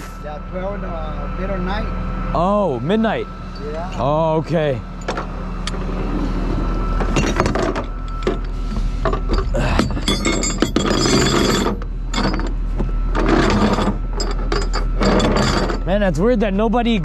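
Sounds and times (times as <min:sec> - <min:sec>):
steady low drone: 0:00.0 - 0:17.0
chain clanking on metal deck: 0:07.0 - 0:15.9
chain scraping on metal: 0:07.0 - 0:16.0.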